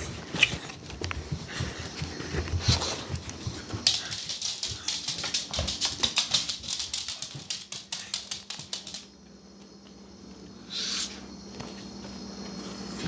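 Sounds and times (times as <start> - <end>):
dog claws clicking on wood floor: 0.4 - 9.1.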